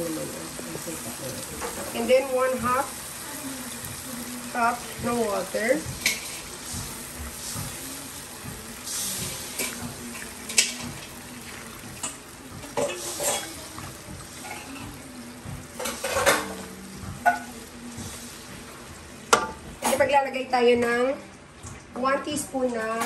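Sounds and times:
sauce sizzling: 0.0 - 19.3
spatula scraping and tapping a wok: 4.8 - 11.0.

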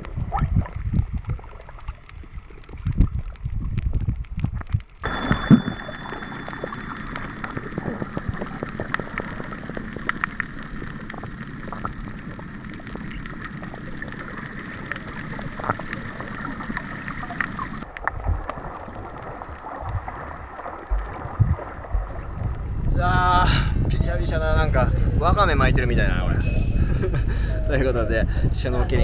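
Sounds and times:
small underwater clicks: 0.0 - 20.1
muffled underwater hiss: 5.7 - 17.8.

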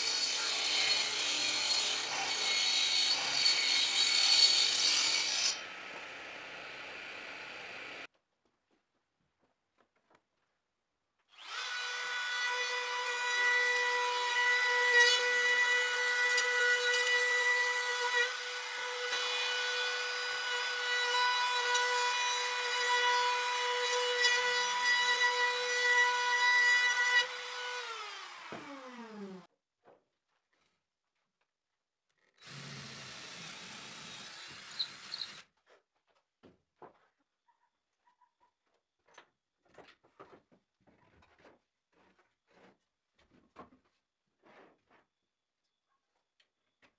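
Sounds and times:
electric power tool working wood: 11.3 - 29.5, 32.4 - 35.4.

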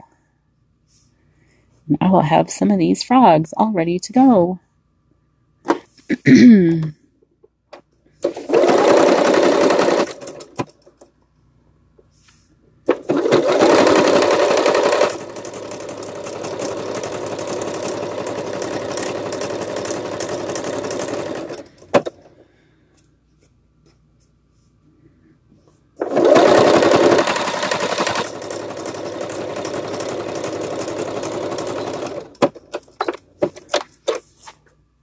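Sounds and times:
sewing machine stitching: 8.2 - 10.9, 12.9 - 22.3, 26.0 - 33.2.

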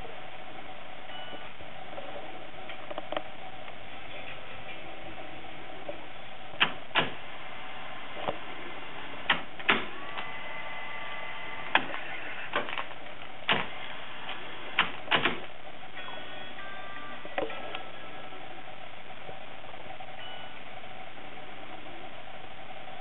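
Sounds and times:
faint steady tone: 0.0 - 2.4, 15.6 - 23.0
steady hiss: 3.3 - 23.0
sharp mechanical clicks and clunks: 6.6 - 7.2, 9.2 - 10.3, 11.7 - 15.5.

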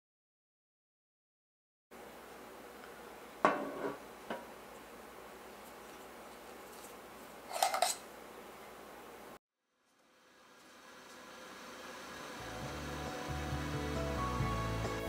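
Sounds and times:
metal pan clunking on wood: 3.4 - 4.5
metal cups clinking: 7.5 - 8.1.

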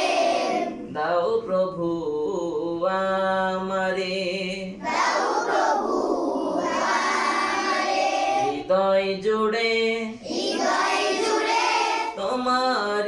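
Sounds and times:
many voices singing together: 0.0 - 1.4, 4.2 - 9.0, 10.0 - 12.3.

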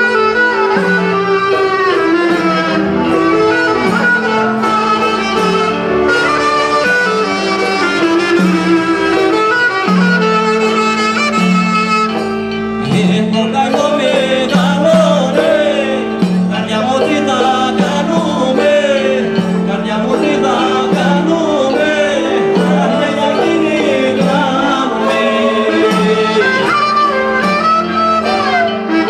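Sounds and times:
clarinet folk dance music: 0.0 - 29.0
person singing: 12.8 - 29.0.

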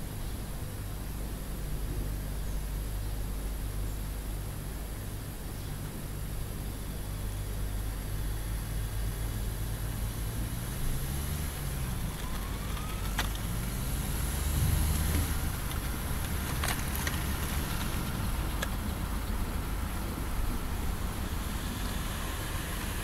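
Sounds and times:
heavy trucks driving by: 7.8 - 23.0.

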